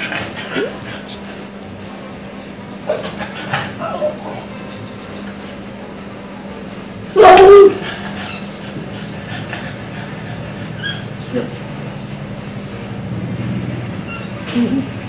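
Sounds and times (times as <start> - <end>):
high-pitched whine: 6.0 - 13.3
dog barking: 7.1 - 7.9.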